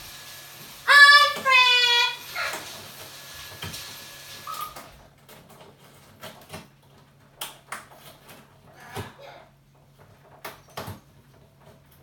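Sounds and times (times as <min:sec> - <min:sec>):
parrot whistle: 0:04.4 - 0:04.8.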